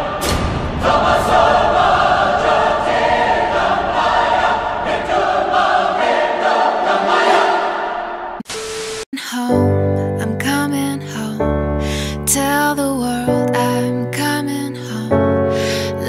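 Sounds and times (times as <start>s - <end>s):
choir singing held notes: 0.0s - 8.4s
dramatic music: 0.0s - 10.7s.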